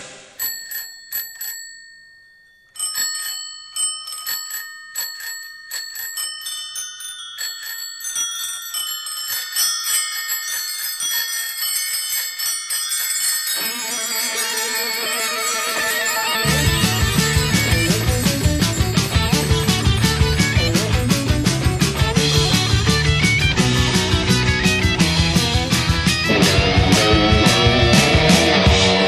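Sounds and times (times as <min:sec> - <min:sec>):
bicycle bells ringing: 0:00.4 - 0:26.3
rock band playing: 0:16.3 - 0:29.0.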